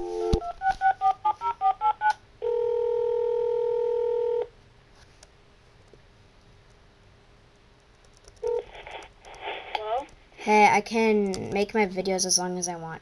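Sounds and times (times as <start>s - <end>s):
phone ringback tone: 0.0s - 4.5s, 8.4s - 8.7s
faint hiss: 8.6s - 11.2s.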